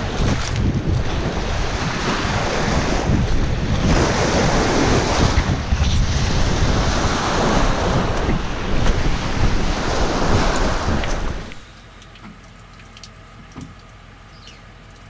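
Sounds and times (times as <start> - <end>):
waves breaking on pebble shore: 0.0 - 11.6
wind buffeting microphone: 0.0 - 11.6.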